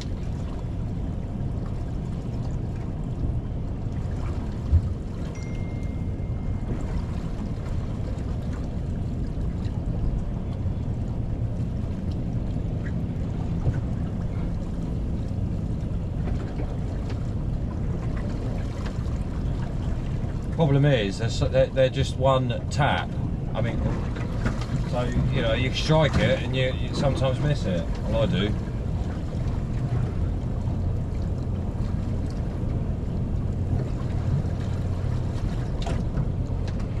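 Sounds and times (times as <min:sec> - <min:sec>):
water and wind around boat hull: 0:00.0 - 0:37.0.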